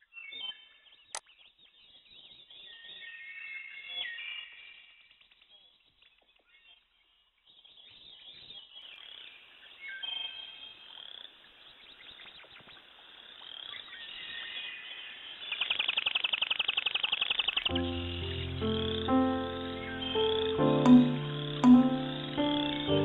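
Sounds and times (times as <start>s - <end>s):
birds chirping: 7.6s - 23.0s
music with held notes: 17.7s - 23.0s.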